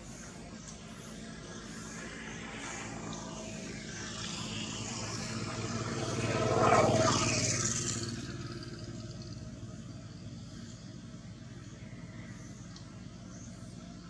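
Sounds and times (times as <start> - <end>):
vehicle passing by: 0.9 - 12.7.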